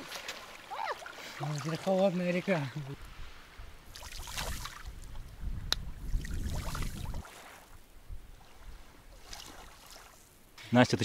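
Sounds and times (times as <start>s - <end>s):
wind buffeting microphone: 3.0s - 7.3s.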